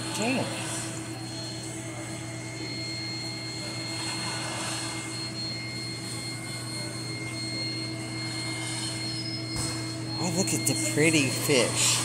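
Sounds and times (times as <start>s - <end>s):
aquarium filters and pumps humming: 0.0s - 12.0s.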